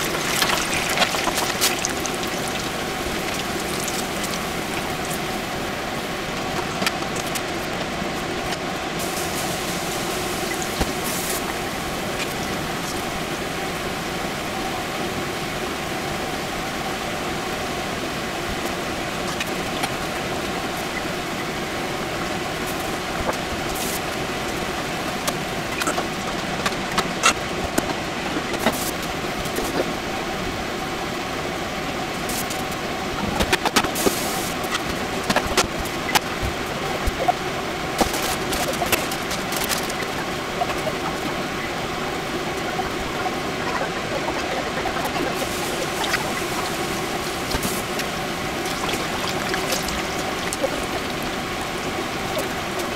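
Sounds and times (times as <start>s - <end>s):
deep-frying oil sizzling: 0.0s - 7.8s, 8.4s - 13.2s.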